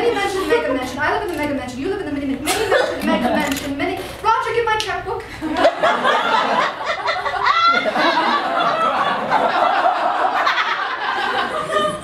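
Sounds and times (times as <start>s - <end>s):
woman speaking: 0.0s - 5.4s
audience laughing: 5.4s - 12.0s.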